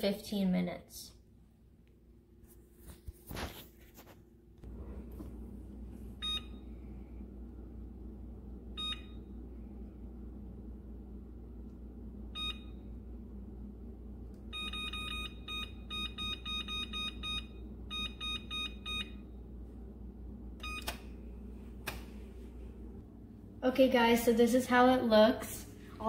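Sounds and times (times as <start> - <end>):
steady low hum: 0.0 - 26.0
oven control panel beeping: 6.2 - 6.8, 8.7 - 9.4, 12.3 - 13.0, 14.4 - 19.5, 20.5 - 21.2.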